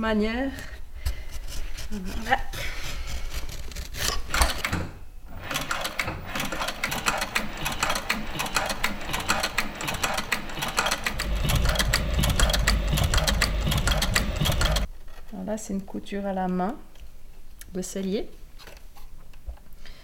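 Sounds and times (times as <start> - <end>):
sewing machine stitching leather: 3.5 - 14.9.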